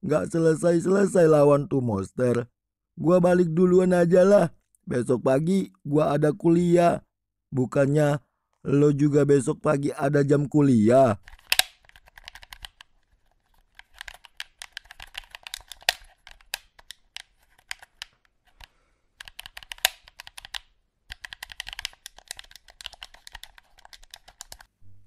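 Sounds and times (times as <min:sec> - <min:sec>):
plastic buttons clicking rapidly: 0:13.8 - 0:24.7.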